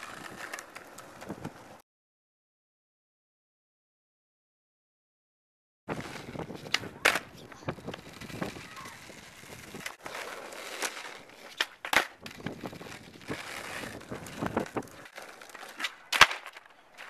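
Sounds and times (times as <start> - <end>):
skateboard clacking: 0.0 - 1.8, 5.9 - 17.0
skateboard wheels rolling on asphalt: 0.0 - 1.8, 5.9 - 17.0.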